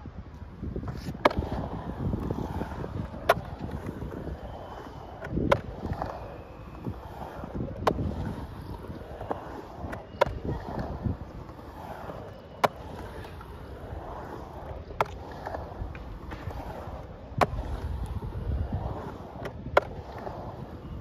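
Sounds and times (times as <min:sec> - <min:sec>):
skateboard wheels rolling on concrete: 0:00.0 - 0:21.0
sharp skateboard clacks: 0:00.3 - 0:21.0.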